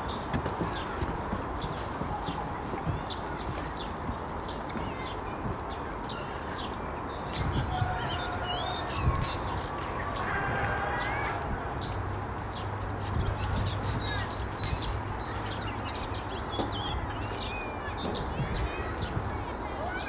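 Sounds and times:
songbirds chirping: 0.0 - 20.0.

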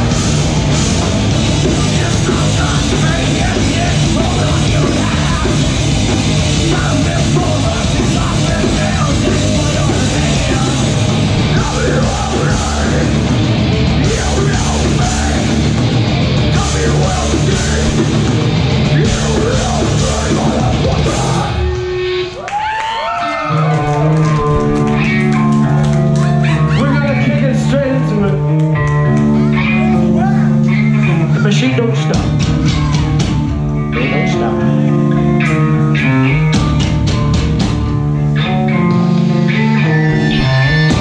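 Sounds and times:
distorted electric guitars: 0.0 - 22.7, 23.4 - 41.0
drum kit: 0.0 - 22.7, 32.0 - 34.5, 35.4 - 41.0
bass guitar: 0.0 - 41.0.

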